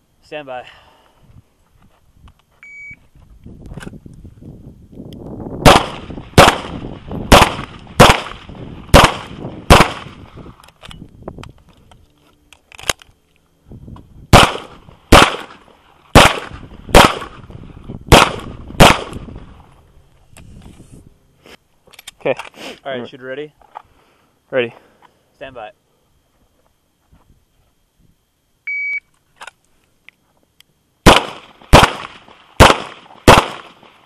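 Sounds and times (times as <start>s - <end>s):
shot timer beep: 2.6s - 3.0s, 28.7s - 29.1s
handgun shots: 5.6s - 10.2s, 14.4s - 15.6s, 16.2s - 17.4s, 18.1s - 19.2s, 31.1s - 33.8s.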